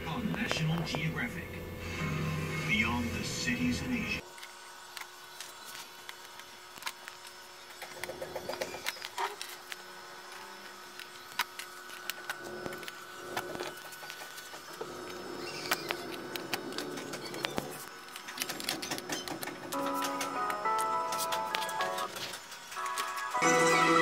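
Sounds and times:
pigeons cooing: 14.7 - 17.9.

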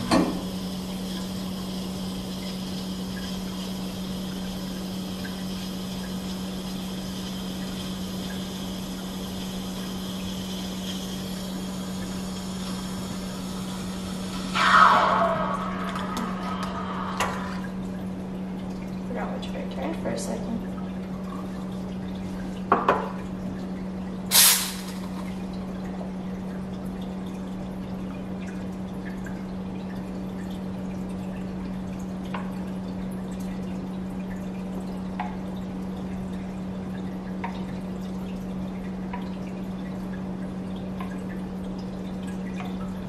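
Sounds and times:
espresso machine pump humming: 0.0 - 17.7
liquid dripping: 0.0 - 43.0
short sharp hiss: 24.3 - 25.2.

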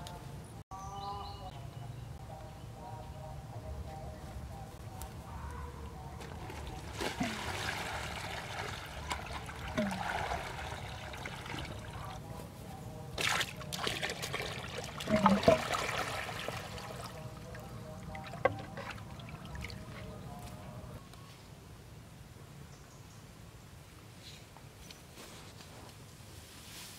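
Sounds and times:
water pouring and splashing: 6.2 - 12.2, 13.2 - 20.0.

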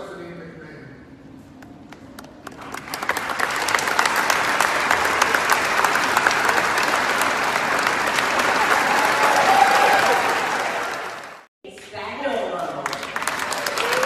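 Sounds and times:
large audience applauding: 2.4 - 11.5, 12.6 - 14.0.

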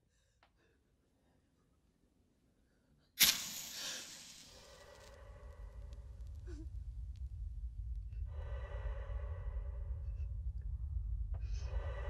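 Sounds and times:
loud hiss-like hit: 3.2 - 5.2
low rumbling drone: 4.6 - 12.0.

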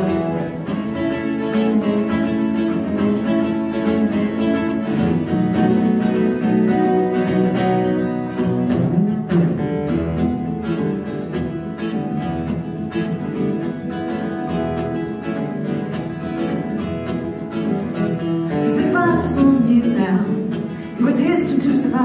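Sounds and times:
acoustic guitars strumming: 0.0 - 22.0.

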